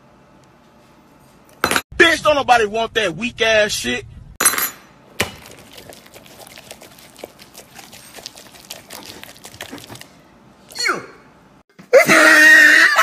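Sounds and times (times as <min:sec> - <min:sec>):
rustling and crunching food: 0:05.2 - 0:10.7.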